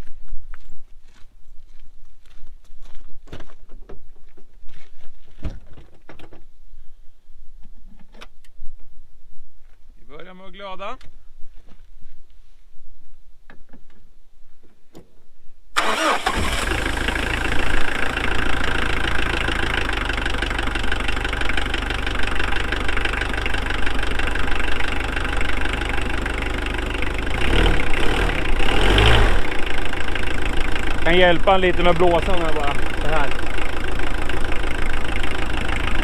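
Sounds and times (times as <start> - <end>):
diesel engine cranking and running: 15.8 - 36.0.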